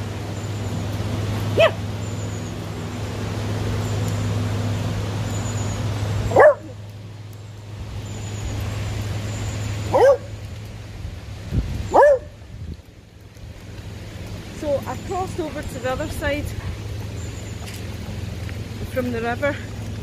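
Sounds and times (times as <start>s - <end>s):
dog yelping barks: 1.6s - 1.8s, 6.3s - 6.8s, 9.9s - 10.3s, 11.9s - 12.3s.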